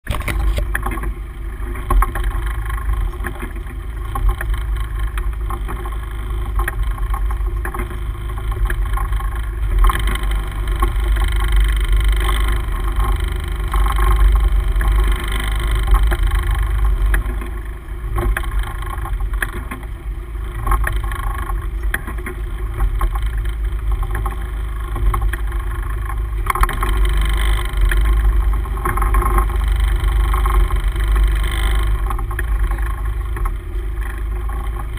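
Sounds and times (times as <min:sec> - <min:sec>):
boat engine rumble: 0:00.0 - 0:34.9
water noise: 0:00.0 - 0:34.9
wind: 0:00.0 - 0:34.9.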